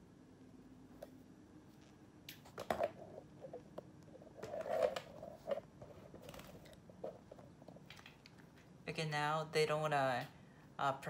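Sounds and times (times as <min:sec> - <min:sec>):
camera rustling: 0:04.3 - 0:08.6.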